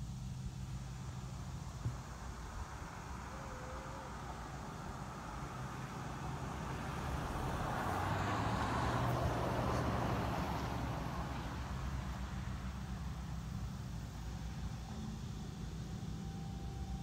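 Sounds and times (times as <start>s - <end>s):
vehicle driving past: 0.8s - 17.0s.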